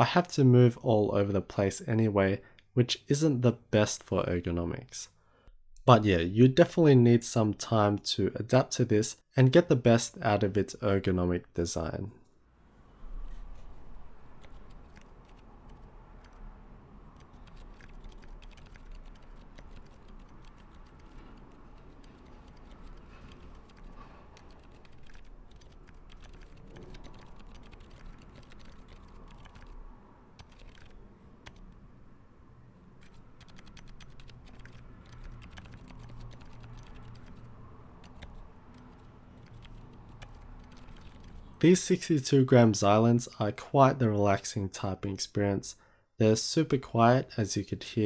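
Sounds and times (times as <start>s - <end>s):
quiet keyboard typing: 13.3s - 31.8s, 33.0s - 41.6s.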